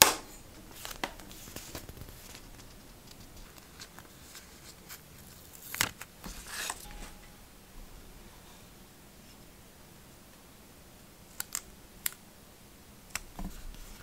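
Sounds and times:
sticker labels rustling and clicking: 0:00.6 - 0:07.2.

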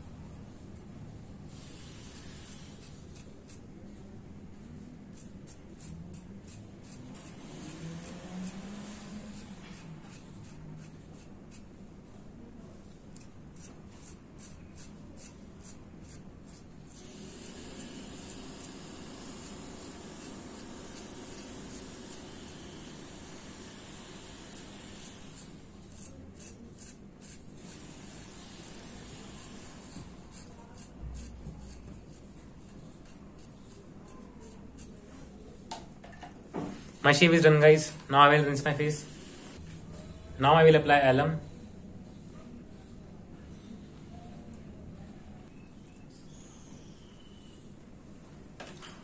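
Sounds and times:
razor scraping stubble: 0:01.5 - 0:04.1, 0:04.8 - 0:12.2, 0:12.9 - 0:35.0.

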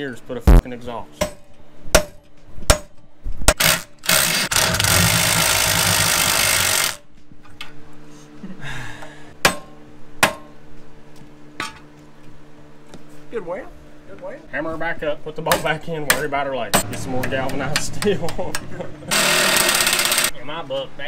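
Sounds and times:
hammer on metal: 0:01.2 - 0:03.6, 0:09.4 - 0:10.5
power tool running: 0:03.5 - 0:07.0, 0:19.0 - 0:20.3.

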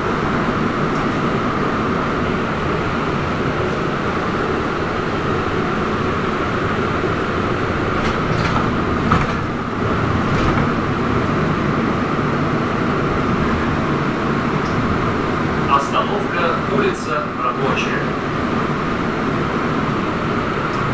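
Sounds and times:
trolleybus electric drive drone: 0:00.0 - 0:20.9
knocks and rattles: 0:07.9 - 0:10.9.

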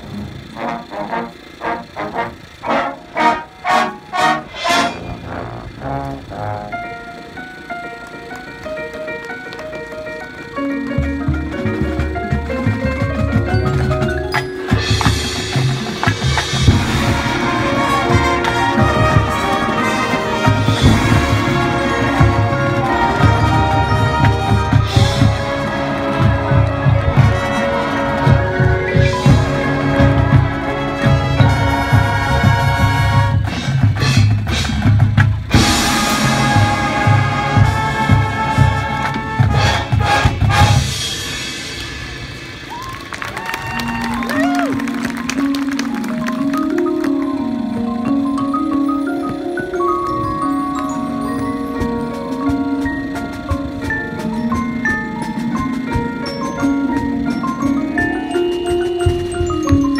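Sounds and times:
brass holding chords: 0:00.0 - 0:13.8, 0:14.7 - 0:33.7, 0:35.5 - 0:41.7
drumline percussion: 0:00.0 - 0:59.9
marching band playing: 0:00.0 - 0:59.9
marimbas: 0:06.2 - 0:39.4, 0:43.6 - 0:59.9.

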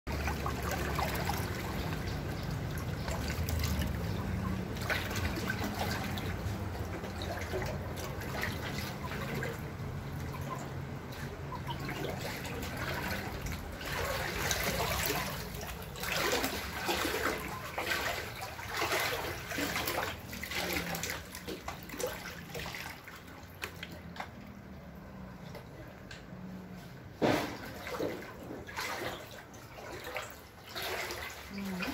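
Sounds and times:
floodwater trickling and running: 0:00.1 - 0:31.9.

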